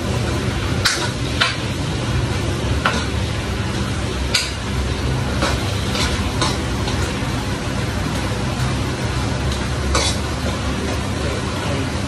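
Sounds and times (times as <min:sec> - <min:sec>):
metal ladle scraping a frying pan: 0:04.3 - 0:07.2, 0:09.8 - 0:10.4.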